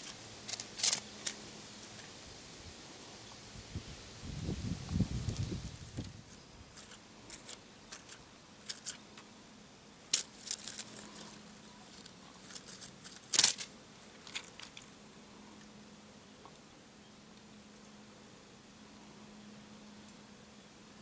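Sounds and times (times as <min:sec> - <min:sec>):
grass and leaves rustling: 0:00.0 - 0:15.7.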